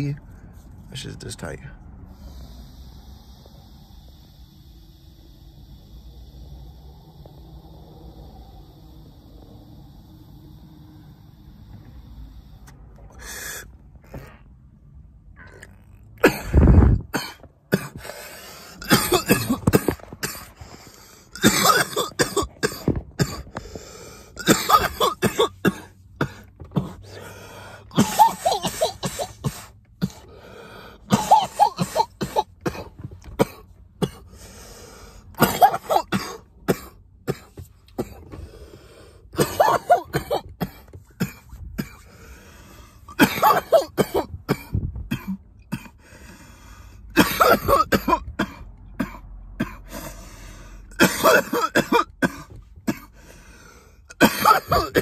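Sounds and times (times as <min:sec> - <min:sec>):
man coughing hard: 0:16.2 - 0:20.5, 0:21.3 - 0:23.5, 0:24.3 - 0:27.2, 0:27.9 - 0:30.3, 0:31.1 - 0:34.3, 0:35.4 - 0:38.2, 0:39.4 - 0:42.1, 0:43.1 - 0:46.0, 0:47.1 - 0:50.0, 0:50.9 - 0:53.2, 0:54.1 - 0:55.0.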